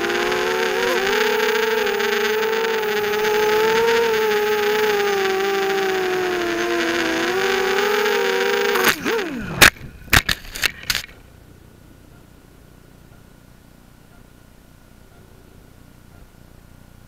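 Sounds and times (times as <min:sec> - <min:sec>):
drone crashing into dirt: 0:00.0 - 0:11.2
quadcopter motors whining: 0:00.0 - 0:11.3.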